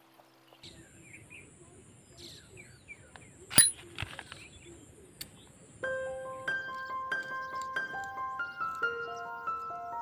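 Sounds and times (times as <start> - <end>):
small birds chirping: 0.0 - 10.0
sharp metal clicks: 3.5 - 4.1.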